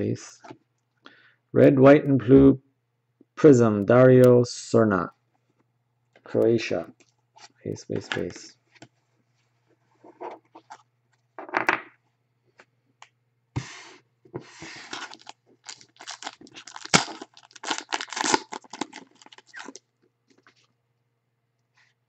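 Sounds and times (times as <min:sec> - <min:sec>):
foil wrapper tearing and crinkling: 0:14.8 - 0:19.8.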